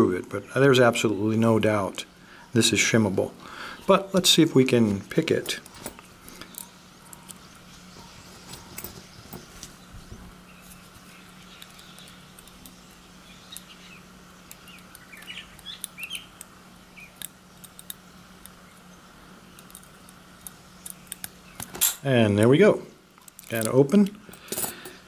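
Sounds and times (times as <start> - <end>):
small birds chirping: 0.3 - 25.0.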